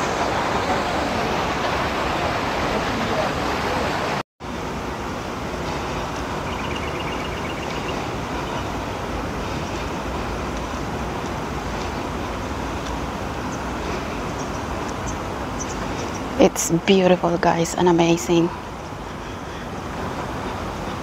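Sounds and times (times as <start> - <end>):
rushing outdoor ambience: 0.0 - 21.0
high chirping notes: 6.4 - 8.7.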